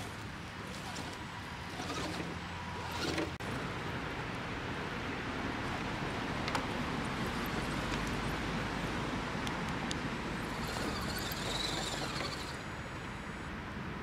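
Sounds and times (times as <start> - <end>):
electric motor whine: 10.4 - 13.4.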